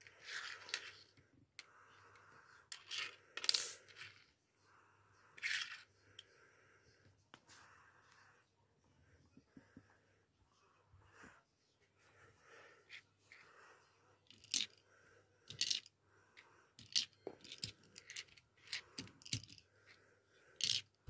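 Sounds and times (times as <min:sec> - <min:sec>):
toy truck parts clicking on tabletop: 0:16.8 - 0:19.6, 0:20.6 - 0:21.0.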